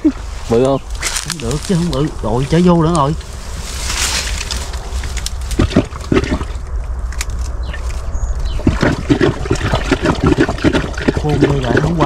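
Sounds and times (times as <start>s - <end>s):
low rumble: 0.0s - 12.0s
water sloshing and splashing: 3.7s - 6.7s, 7.7s - 12.0s.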